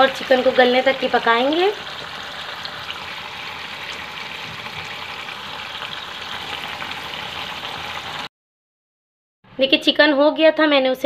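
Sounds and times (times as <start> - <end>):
chicken sizzling in hot oil: 0.0 - 8.3.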